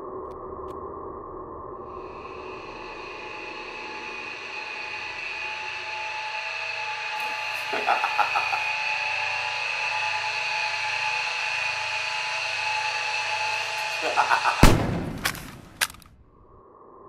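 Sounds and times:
steady high drone: 1.2s - 16.0s
man laughing: 7.6s - 8.8s, 13.9s - 14.8s
pistol shot: 14.6s - 16.1s
sharp clicks: 14.6s - 16.2s.

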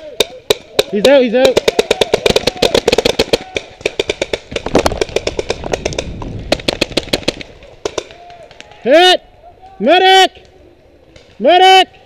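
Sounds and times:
paintball markers firing: 0.1s - 8.8s.

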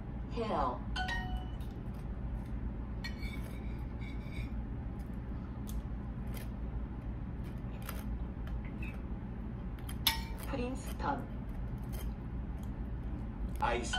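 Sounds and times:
low steady hum: 0.0s - 13.9s
knife scraping cream cheese: 1.9s - 5.1s, 9.8s - 12.8s.

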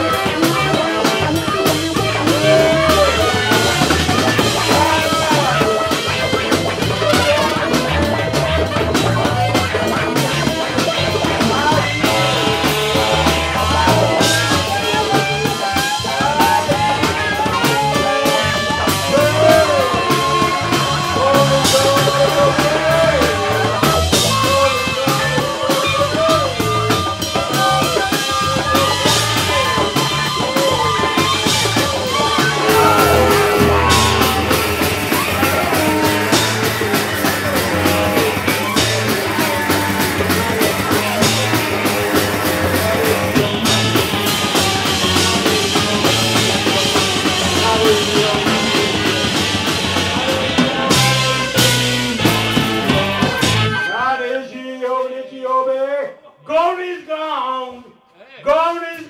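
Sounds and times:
live band playing: 0.0s - 54.0s
trumpet melody: 32.6s - 36.8s.

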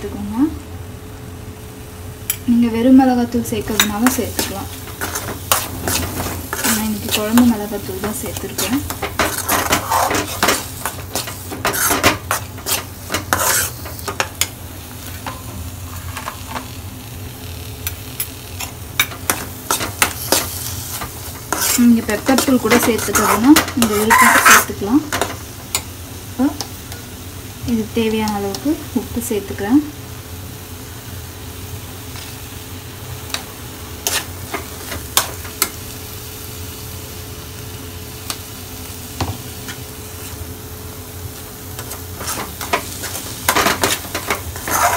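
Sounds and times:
steady low hum: 0.0s - 32.0s
paste sizzling in oil: 3.0s - 44.9s
steel spoon scraping a pan: 3.7s - 16.6s, 18.6s - 25.9s, 34.0s - 35.7s, 41.8s - 44.9s.

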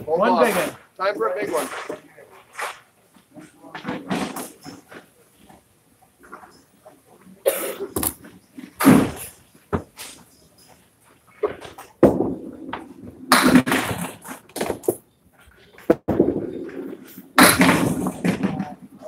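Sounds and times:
bowling ball hitting lane: 11.5s - 14.8s, 15.9s - 18.8s.

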